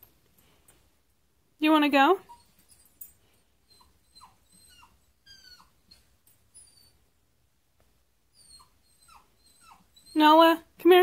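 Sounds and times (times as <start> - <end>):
dog whimpering: 2.2 - 3.0, 3.6 - 7.1, 8.3 - 10.6.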